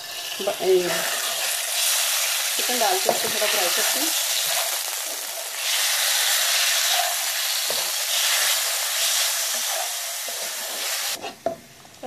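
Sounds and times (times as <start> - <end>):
chicken sizzling in hot oil: 0.0 - 11.3
spatula stirring: 6.5 - 11.5.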